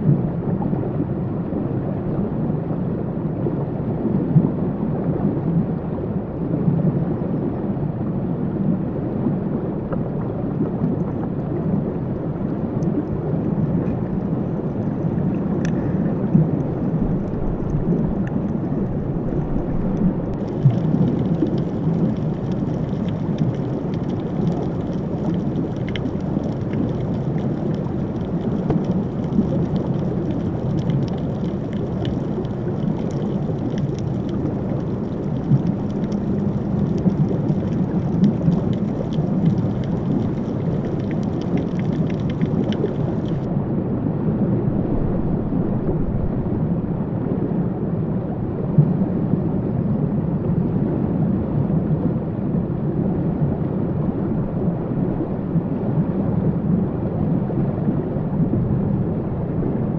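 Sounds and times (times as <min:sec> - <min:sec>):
underwater rushing rumble: 0:00.0 - 0:59.9
faint crackling clicks: 0:12.5 - 0:43.5.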